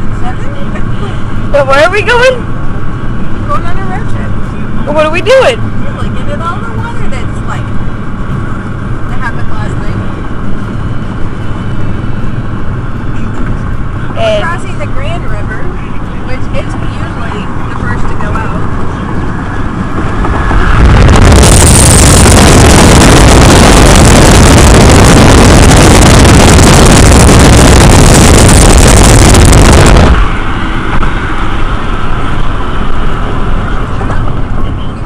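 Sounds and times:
car road noise: 0.0 - 35.0
wind buffeting microphone: 13.6 - 35.0.

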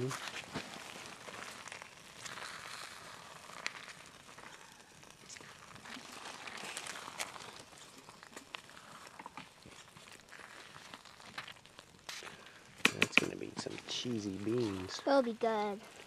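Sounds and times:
wooden spoon scraping pot: 0.1 - 4.6, 5.2 - 12.4.

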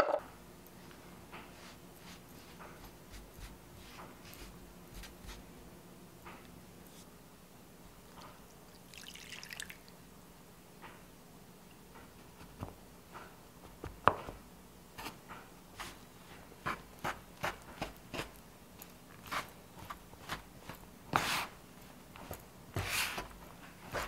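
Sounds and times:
scraper scraping dough: 19.2 - 21.6, 22.7 - 24.0.

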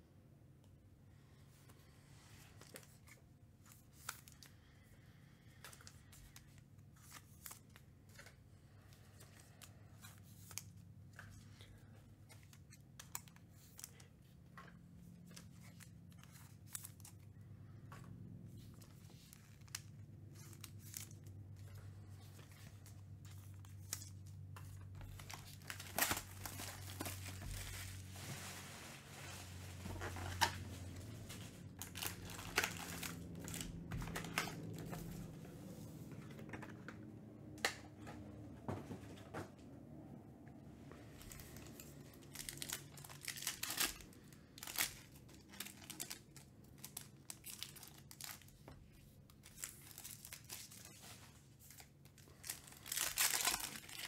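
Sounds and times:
plastic wrap crinkling and tearing: 18.6 - 35.3, 41.2 - 54.0.

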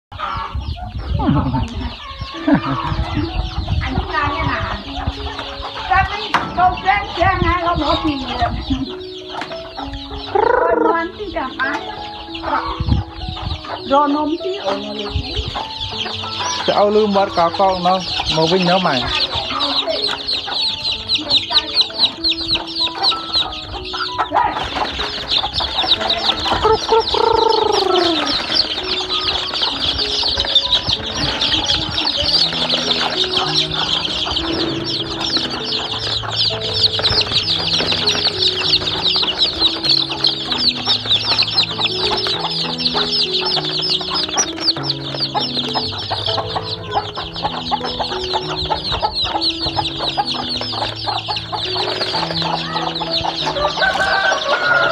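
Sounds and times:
background music with low notes: 0.1 - 54.9
chicks peeping: 0.1 - 54.9.

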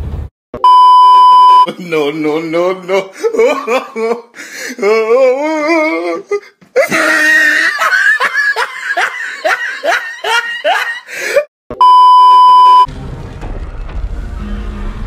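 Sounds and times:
steady beep tone: 0.6 - 1.7, 11.8 - 12.9
loud exaggerated laughter: 2.8 - 4.4, 6.8 - 11.5.

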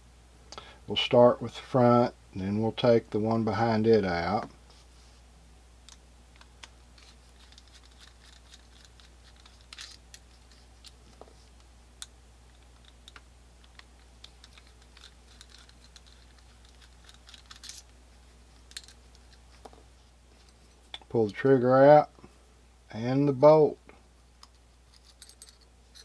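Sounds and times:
steady low hum: 0.0 - 26.0
screwdriver clicks and scrapes on metal: 12.0 - 17.9.

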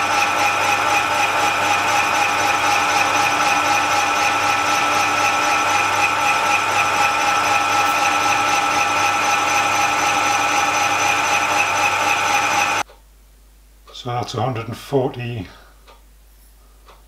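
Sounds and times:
metal lathe cutting: 0.0 - 12.8.

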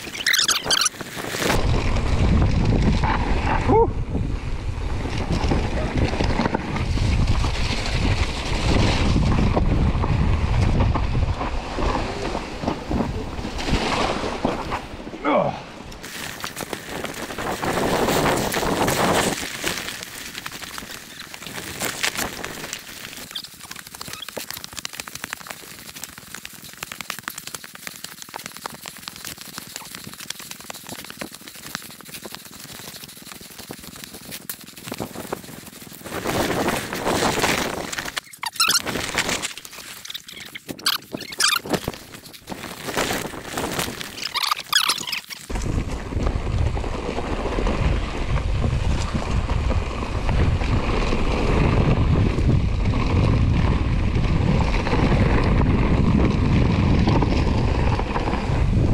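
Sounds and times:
bike rattling and squeaking: 0.0 - 1.6, 16.0 - 45.5
bike tyres rolling over gravel: 0.0 - 15.1, 15.9 - 58.9.

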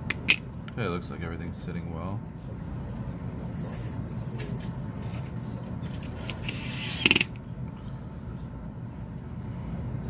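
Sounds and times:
steady low hum: 0.0 - 10.0
screwdriver ratcheting clicks: 6.3 - 7.4.

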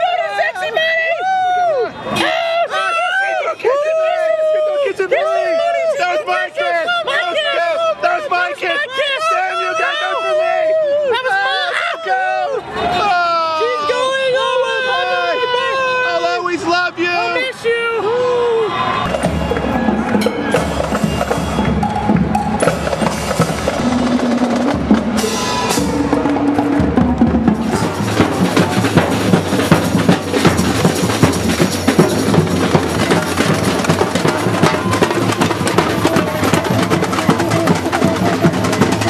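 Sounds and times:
fast dense drumming: 19.1 - 39.0.

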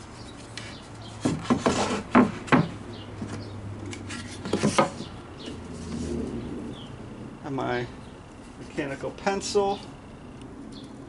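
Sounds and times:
wooden knocks on boards: 1.2 - 3.4.

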